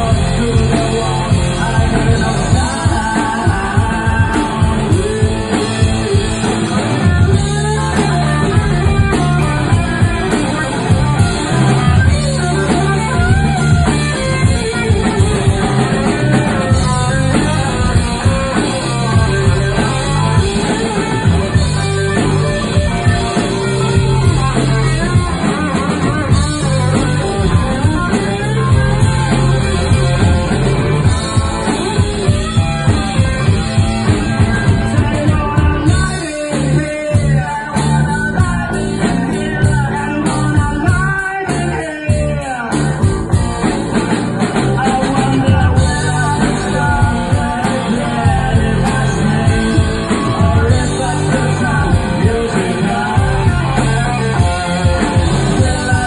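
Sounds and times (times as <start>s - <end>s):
bass guitar: 0.0s - 56.0s
drum kit beat: 0.0s - 56.0s
electric guitar: 0.0s - 56.0s.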